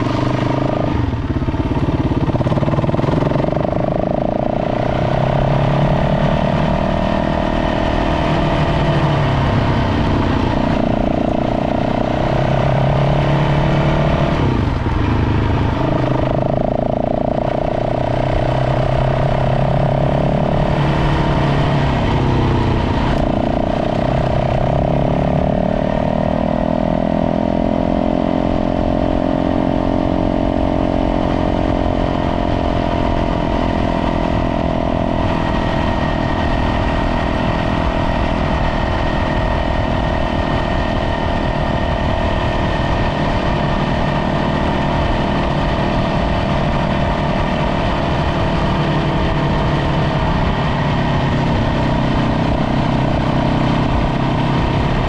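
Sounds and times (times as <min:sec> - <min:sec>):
dirt bike engine running: 0:00.0 - 0:55.0.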